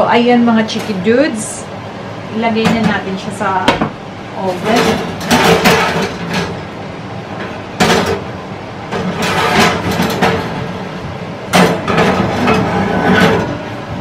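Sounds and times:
steady hum: 0.0 - 14.0
ceramic dish scraping metal rack: 9.0 - 10.5, 11.6 - 13.6.

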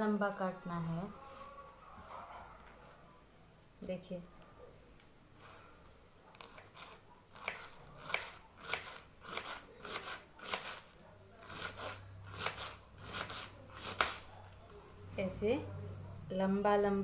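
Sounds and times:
knife slicing cabbage: 6.3 - 14.3.

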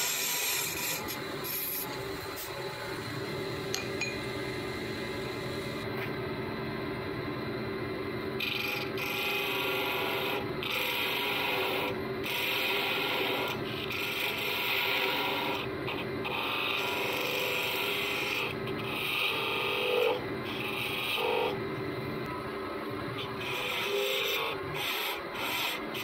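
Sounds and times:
lathe chisel scraping wood: 0.0 - 2.0, 23.2 - 26.0
lathe motor humming: 8.4 - 26.0.

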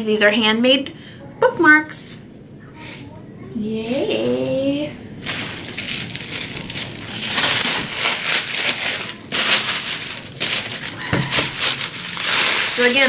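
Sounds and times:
tissue paper crinkling: 5.2 - 13.0.

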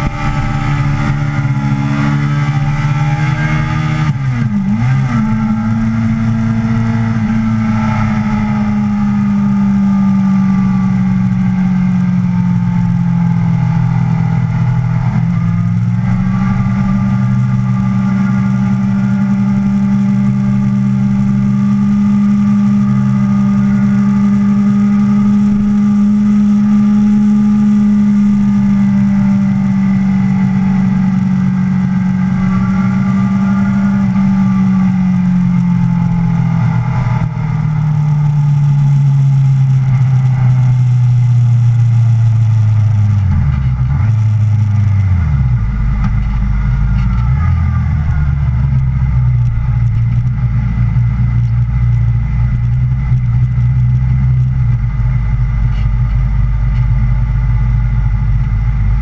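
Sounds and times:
wind rush: 0.0 - 4.6
motorcycle engine running: 0.0 - 59.0.

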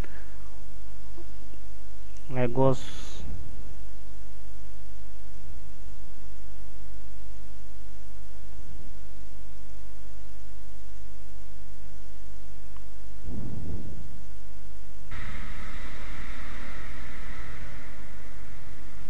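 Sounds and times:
electrical mains hum: 0.0 - 19.0
low rumbling burst: 13.2 - 19.0.

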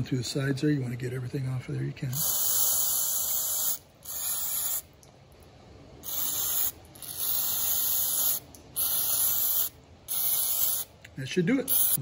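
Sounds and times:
aerosol can hissing: 2.1 - 4.9, 6.0 - 10.9, 11.7 - 12.0.

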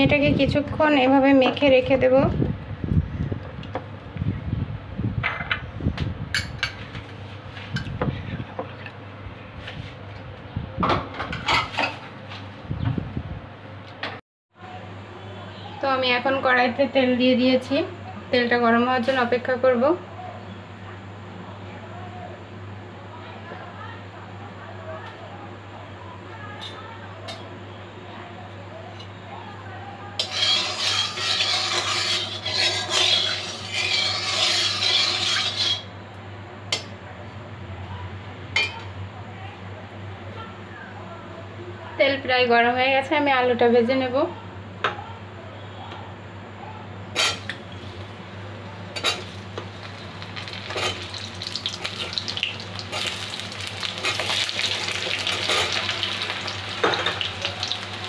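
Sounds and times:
metal spatula scraping a pan: 30.2 - 35.9, 47.2 - 47.9, 50.4 - 58.0.

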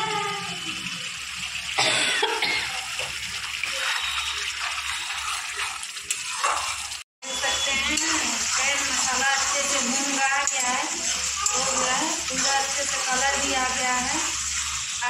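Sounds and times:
paste sizzling in a pan: 2.7 - 15.0
spatula scraping a pan: 3.5 - 15.0.

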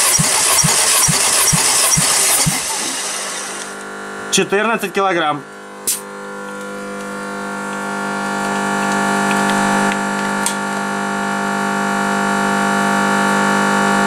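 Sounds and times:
steady hum: 0.0 - 12.2.

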